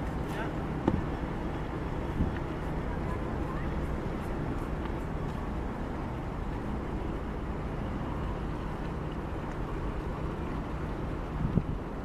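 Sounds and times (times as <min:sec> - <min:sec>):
ship diesel engine rumbling: 0:00.0 - 0:12.0.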